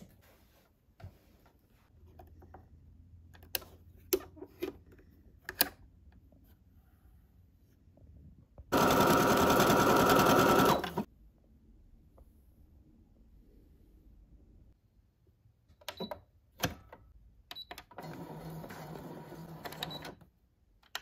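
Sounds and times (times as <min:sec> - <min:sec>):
sewing machine stitching: 0:08.7 - 0:11.1.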